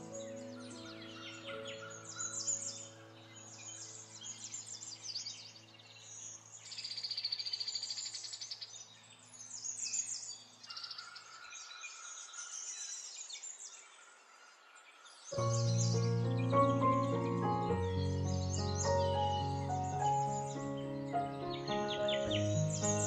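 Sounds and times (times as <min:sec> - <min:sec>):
soft background music: 0:00.0 - 0:10.4, 0:15.4 - 0:23.0
small birds chirping: 0:00.0 - 0:23.0.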